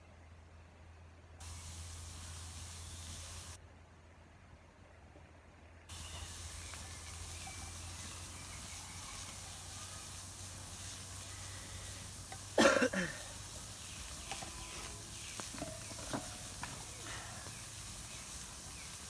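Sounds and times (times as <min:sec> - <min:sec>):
steady hiss: 0:01.4 - 0:03.6, 0:05.9 - 0:19.0
person coughing: 0:12.6 - 0:13.3.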